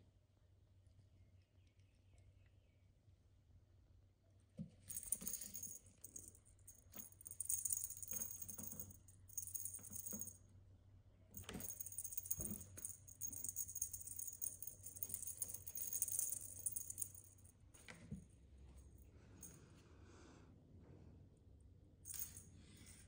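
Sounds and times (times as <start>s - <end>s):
cat toy jingling and rattling: 4.9s - 10.4s, 11.4s - 17.5s.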